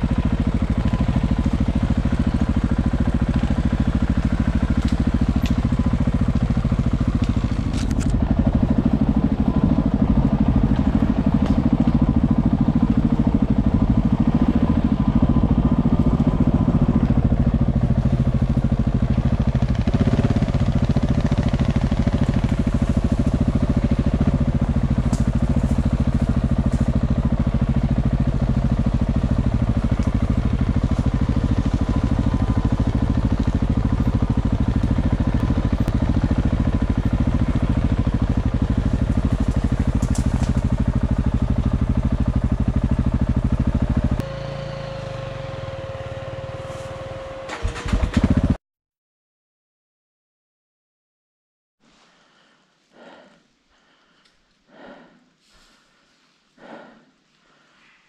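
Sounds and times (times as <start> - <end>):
motorcycle engine running: 0.0 - 48.6
twigs and stones crackling under tyres: 0.5 - 8.4, 19.1 - 42.0.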